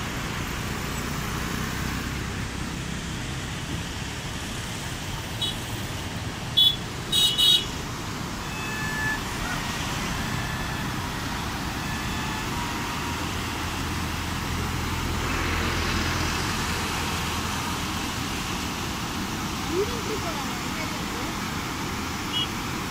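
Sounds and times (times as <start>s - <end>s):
road traffic: 0.0s - 22.9s
vehicle horn toots: 6.6s - 7.7s, 8.4s - 11.1s, 11.7s - 12.8s
water pouring over spillway: 7.7s - 22.9s.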